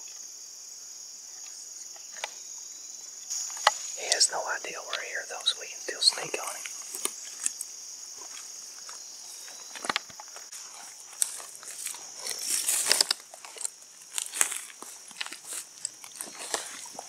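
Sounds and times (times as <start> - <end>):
high insect drone: 0.0 - 17.0
footsteps on dry leaves: 10.4 - 17.0.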